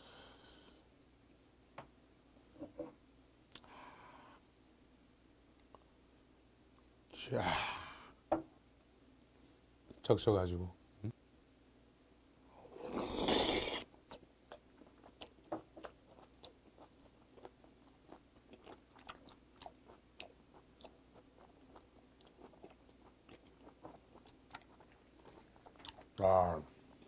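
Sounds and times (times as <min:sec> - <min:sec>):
loud slurp: 0:12.8 - 0:13.9
wet chewing with smacking clicks: 0:14.1 - 0:26.3.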